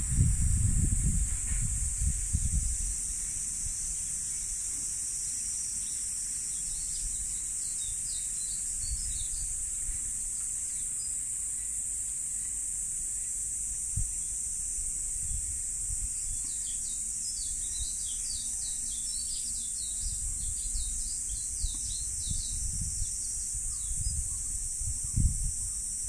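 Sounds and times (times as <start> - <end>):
cicadas droning: 0.0 - 26.0.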